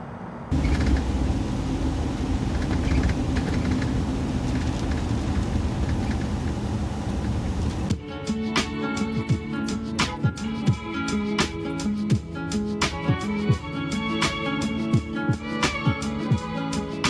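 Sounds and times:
bus engine and road rumble: 0:00.0 - 0:08.0.

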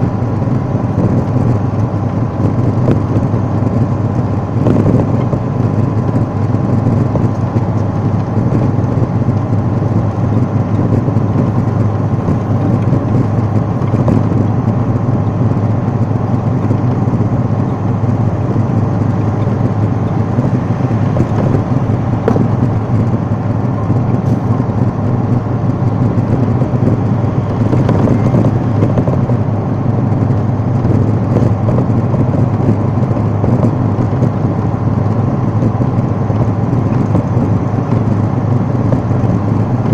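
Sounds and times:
engine and road noise in car cabin: 0:00.0 - 0:39.9.

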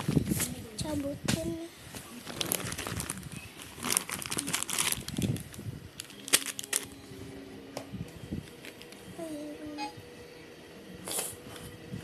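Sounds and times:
plastic wrapping crinkling: 0:02.1 - 0:07.0.

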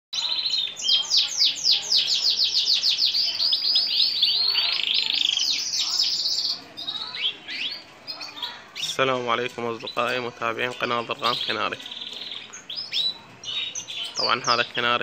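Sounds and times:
canary singing: 0:00.1 - 0:15.0.

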